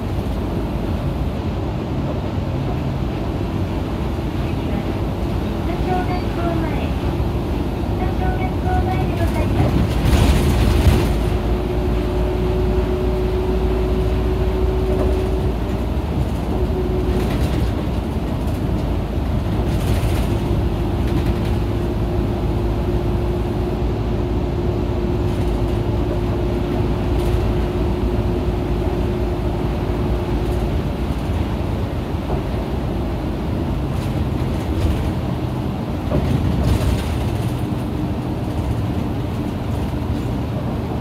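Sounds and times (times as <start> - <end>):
bus engine and road rumble: 0.0 - 41.0.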